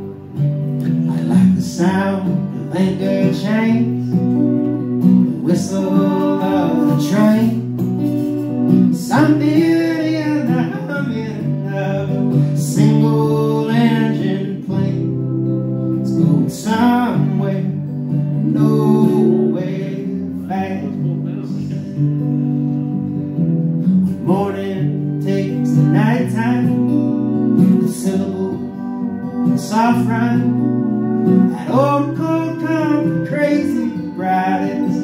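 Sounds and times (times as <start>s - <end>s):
electric guitar playing: 0.0s - 35.0s
strummed acoustic guitar: 0.0s - 35.0s
man singing: 0.9s - 4.4s, 5.3s - 7.8s, 8.9s - 22.1s, 24.2s - 35.0s.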